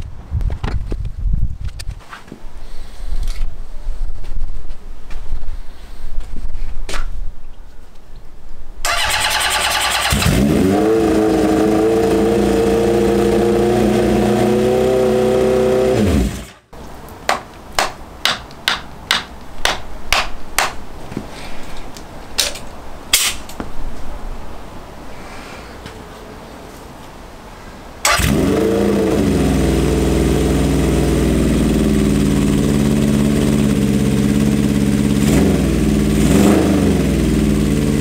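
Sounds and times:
motorcycle engine starting and running: 8.8s - 16.7s, 28.0s - 38.0s.

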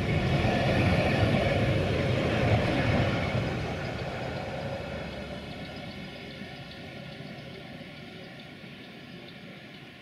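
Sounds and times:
tram rumbling along track: 0.0s - 10.0s.

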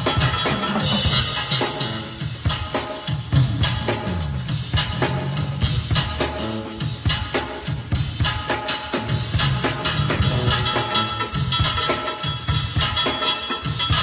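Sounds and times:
steady drum beat: 0.0s - 14.0s
slap bass line: 9.3s - 11.7s.

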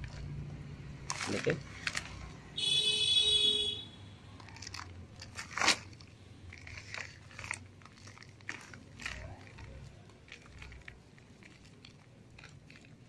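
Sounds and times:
dry roots crackling and snapping: 1.0s - 2.4s, 4.4s - 13.0s.

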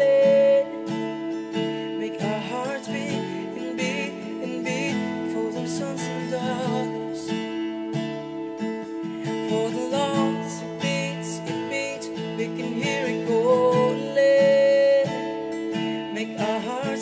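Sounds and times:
man singing: 0.0s - 1.0s, 2.0s - 7.5s, 9.2s - 15.3s, 16.1s - 17.0s
strummed acoustic guitar: 0.0s - 17.0s.

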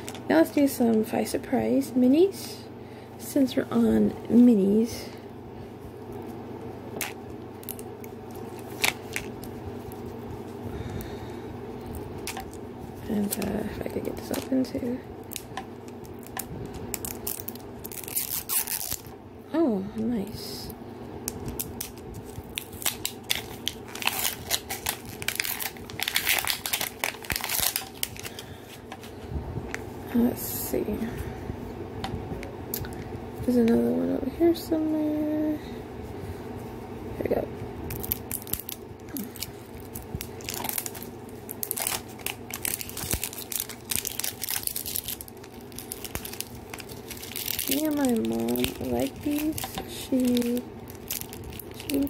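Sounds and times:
plastic wrap crinkling: 6.1s - 19.1s, 21.3s - 29.2s, 37.9s - 52.0s.

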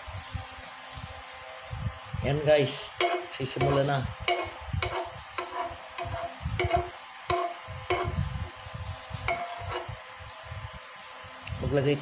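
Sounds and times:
metal spoon scraping frying pan: 2.9s - 8.2s, 9.3s - 10.0s.

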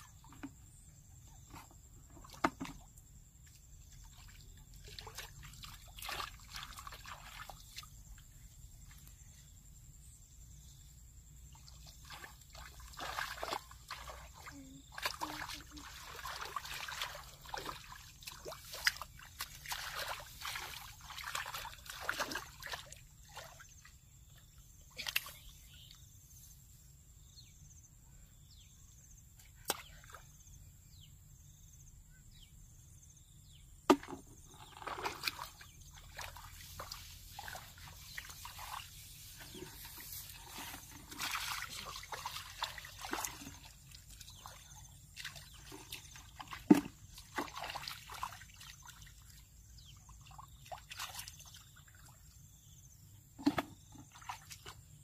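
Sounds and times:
shallow water splashing: 4.0s - 8.0s, 11.6s - 23.8s, 34.0s - 49.4s.

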